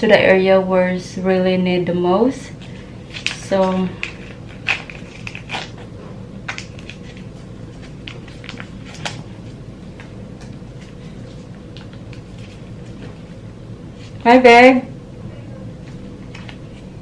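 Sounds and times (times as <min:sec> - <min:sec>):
steady low hum: 0:00.0 - 0:17.0
plastic packet crinkling: 0:02.6 - 0:05.9, 0:06.5 - 0:09.6.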